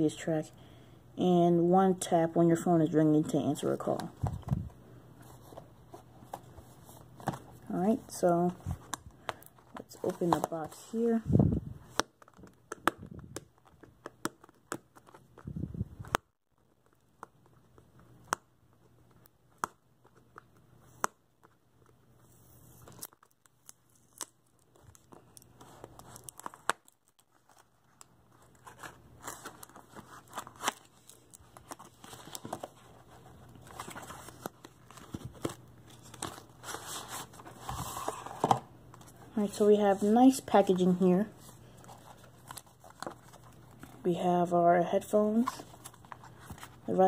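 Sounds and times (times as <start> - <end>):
cardboard rustling and scraping: 28.4 - 39.2.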